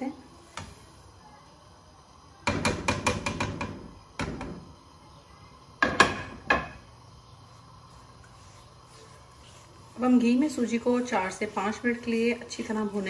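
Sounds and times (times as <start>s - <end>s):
spatula knocking against pan: 2.4s - 4.6s, 5.8s - 6.8s.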